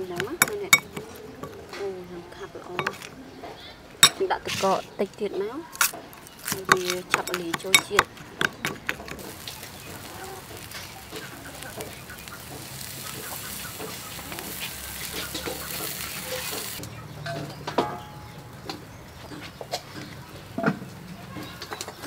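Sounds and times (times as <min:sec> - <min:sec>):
chickens clucking: 0:00.0 - 0:22.0
meat sizzling on a grill: 0:09.1 - 0:16.9.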